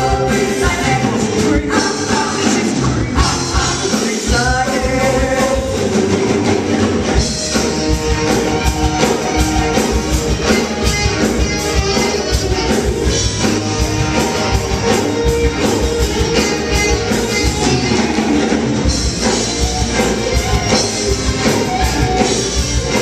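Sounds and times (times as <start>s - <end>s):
people singing: 0.0s - 7.0s
live rock band music: 0.0s - 23.0s.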